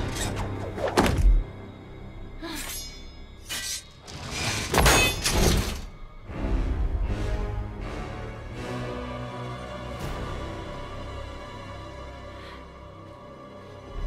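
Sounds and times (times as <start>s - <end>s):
dramatic orchestral music: 0.0s - 14.0s
metallic clangs: 2.7s - 6.0s.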